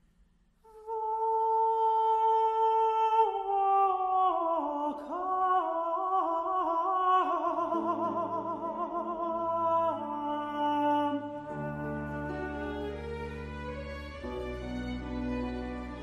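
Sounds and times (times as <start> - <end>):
countertenor singing: 1.0 - 13.7.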